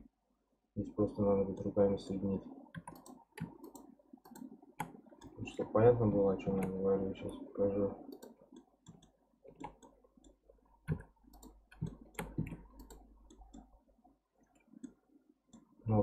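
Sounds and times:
mouse and keyboard clicks: 0:02.8 - 0:05.4, 0:08.1 - 0:13.7.

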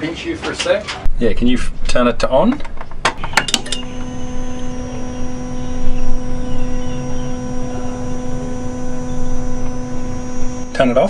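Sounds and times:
steady electric hum: 0:01.1 - 0:11.0.

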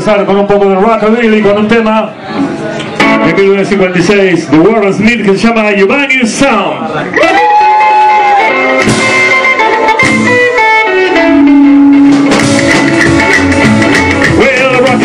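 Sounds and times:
rockabilly band playing: 0:00.0 - 0:06.4, 0:07.1 - 0:15.0
electric guitar lead: 0:02.7 - 0:03.6, 0:07.1 - 0:15.0.

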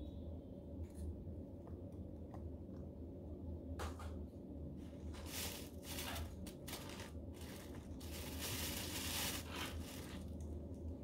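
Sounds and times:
low steady hum: 0:00.0 - 0:11.0
herb stalks crunching and tearing: 0:05.2 - 0:10.4.

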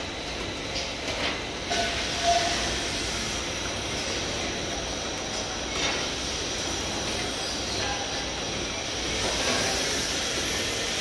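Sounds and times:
hiss of hot oil frying: 0:08.7 - 0:11.0.

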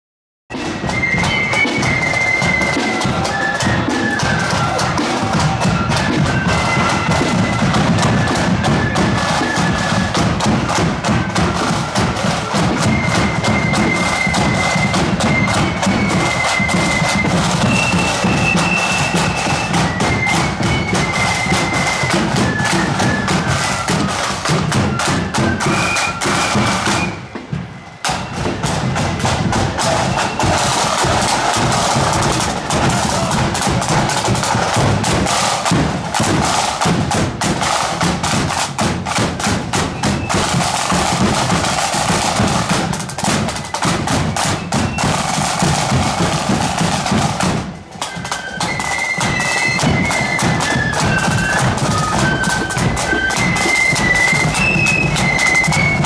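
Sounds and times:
flutes playing high melody: 0:00.5 - 0:56.0
side drums: 0:00.5 - 0:56.0
bass drum: 0:28.1 - 0:47.8.

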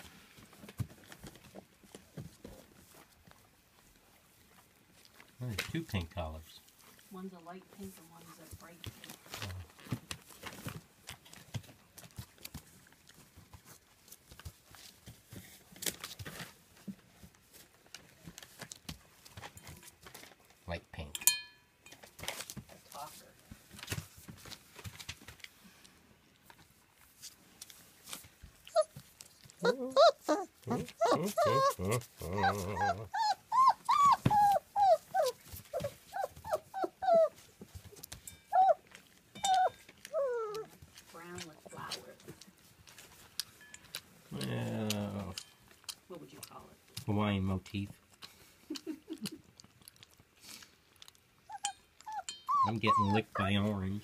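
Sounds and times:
puppies crinkling newspaper: 0:00.0 - 0:20.6, 0:22.2 - 0:51.4
puppies whining and yelping: 0:28.6 - 0:41.0, 0:51.3 - 0:53.8.

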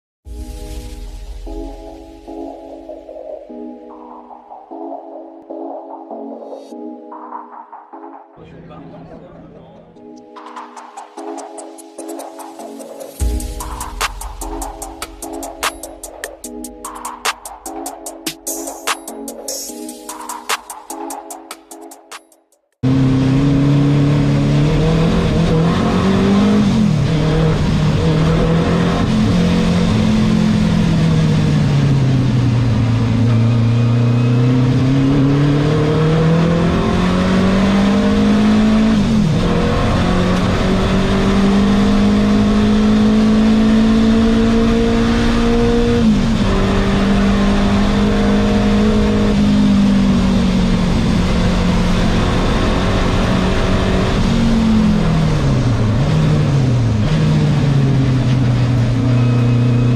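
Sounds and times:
race car engine accelerating: 0:22.8 - 0:59.9.

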